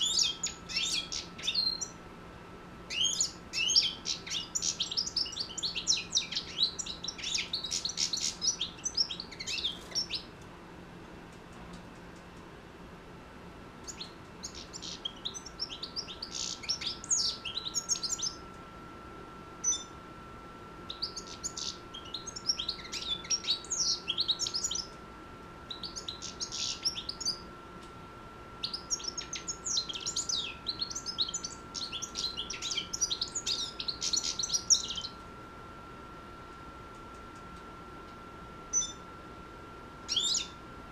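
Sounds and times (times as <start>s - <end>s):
goldfinch twittering song: 0.0s - 2.0s, 2.9s - 10.3s, 13.8s - 18.4s, 19.6s - 20.0s, 20.9s - 24.9s, 25.7s - 27.4s, 28.6s - 35.2s, 38.7s - 39.0s, 40.1s - 40.6s.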